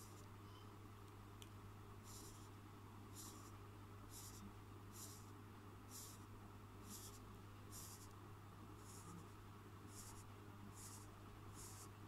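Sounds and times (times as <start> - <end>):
steady low hum: 0.0 - 12.0
marker scratching on paper: 2.0 - 2.5, 3.2 - 3.5, 4.1 - 5.3, 5.9 - 8.1, 8.8 - 9.3, 9.9 - 12.0.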